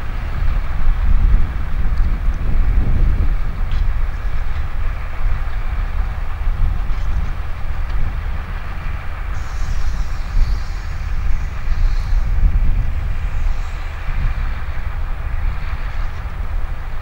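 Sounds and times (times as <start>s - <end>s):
diesel engines rumbling: 0.0s - 17.0s
high hiss: 9.3s - 14.6s.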